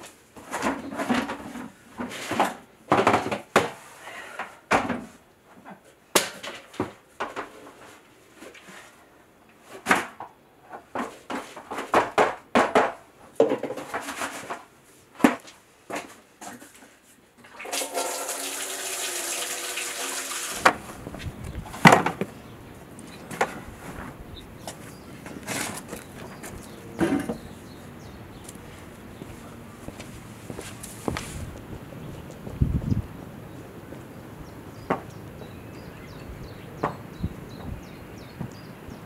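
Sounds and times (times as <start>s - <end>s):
plastic bins clattering: 0.4s - 3.8s, 6.2s - 7.9s, 9.7s - 16.8s, 21.6s - 22.3s, 23.2s - 27.4s
rushing pour: 17.6s - 20.8s.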